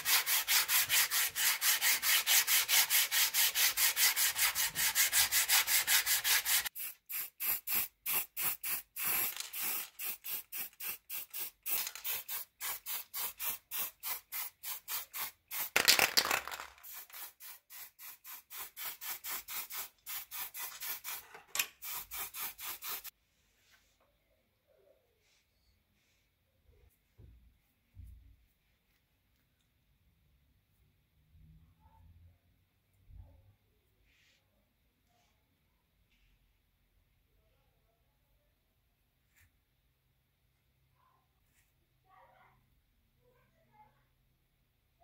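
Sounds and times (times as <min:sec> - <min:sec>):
sandpaper scraping steel blade: 0:00.0 - 0:07.0, 0:16.8 - 0:23.1.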